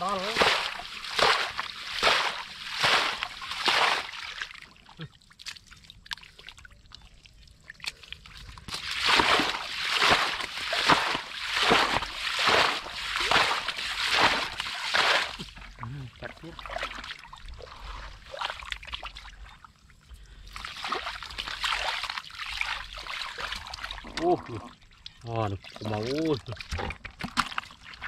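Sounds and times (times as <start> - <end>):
faint water drips and trickles: 0.0 - 28.0
muddy water sloshing and splashing: 0.0 - 28.0.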